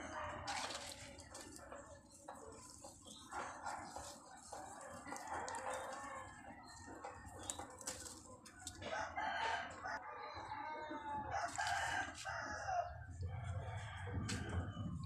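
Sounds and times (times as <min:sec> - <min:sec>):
rooster crowing: 0:08.8 - 0:14.8.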